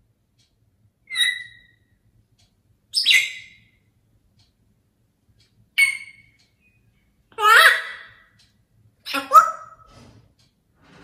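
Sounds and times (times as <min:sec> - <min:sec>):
parrot whistling calls: 0:01.1 - 0:01.8, 0:02.9 - 0:03.6, 0:05.8 - 0:06.3.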